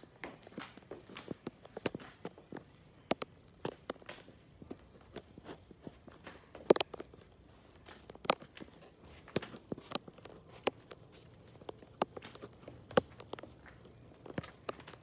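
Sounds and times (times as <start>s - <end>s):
footsteps: 0.0s - 15.0s.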